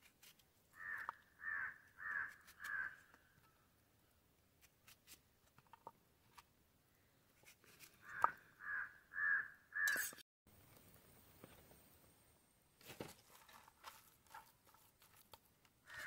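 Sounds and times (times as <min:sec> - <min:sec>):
crow cawing: 0:00.8 - 0:03.2, 0:08.0 - 0:10.0.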